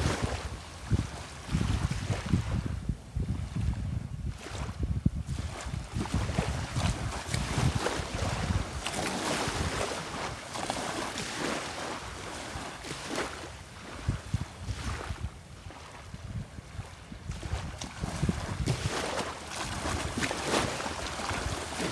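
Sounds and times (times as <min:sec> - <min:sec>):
small waves lapping on beach: 0:00.0 - 0:21.9
wind buffeting microphone: 0:00.0 - 0:21.9.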